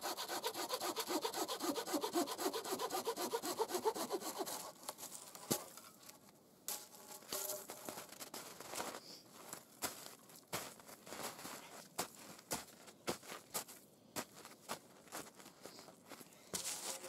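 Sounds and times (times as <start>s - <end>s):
hand saw rasping through log: 0.0s - 4.9s
rustling and crunching in snow: 6.8s - 17.0s.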